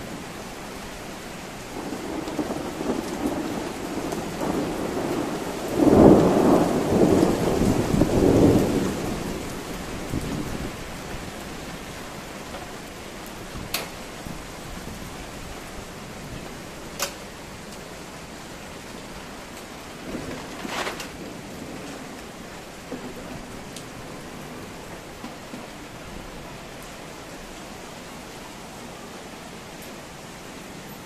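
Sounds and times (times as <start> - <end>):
rain hissing: 0.0 - 31.0
thunder rolling: 1.7 - 10.8, 19.9 - 26.3.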